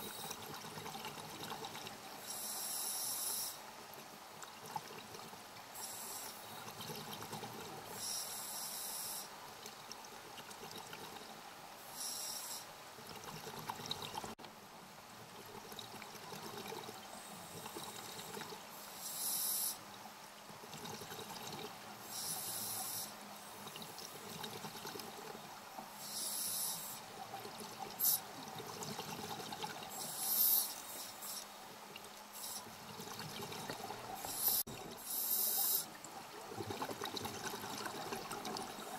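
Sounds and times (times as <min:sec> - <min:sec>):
exhaled bubbles gurgling underwater: 0:32.8 - 0:35.0, 0:35.9 - 0:38.9.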